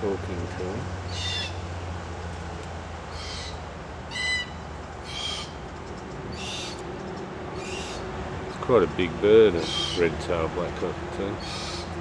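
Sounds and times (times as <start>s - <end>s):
cockatoos calling: 1.0s - 1.7s, 3.1s - 8.1s, 9.4s - 10.3s, 11.2s - 12.0s.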